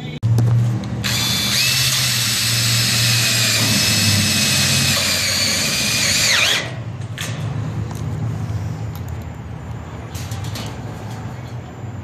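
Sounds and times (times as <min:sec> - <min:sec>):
cordless drill whining: 0:01.0 - 0:06.7.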